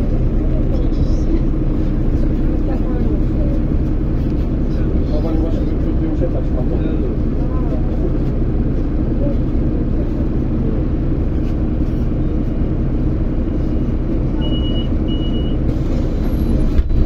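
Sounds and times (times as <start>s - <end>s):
vehicle engine hum: 0.0s - 17.0s
short high beeps: 14.4s - 15.6s.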